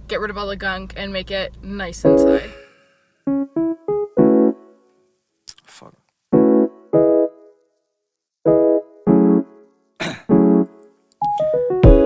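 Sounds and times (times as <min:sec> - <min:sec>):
electric piano chords: 0:02.0 - 0:02.6, 0:03.3 - 0:04.9, 0:06.3 - 0:07.6, 0:08.4 - 0:09.7, 0:10.3 - 0:12.0.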